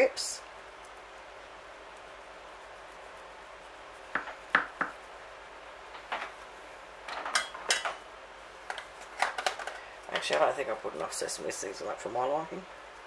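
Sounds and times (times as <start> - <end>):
knife knocking on chopping board: 4.2 - 5.0.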